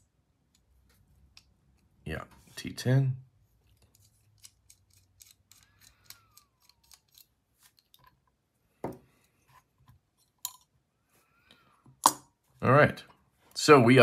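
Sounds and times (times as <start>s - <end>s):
small metallic clicks: 3.8s - 8.2s.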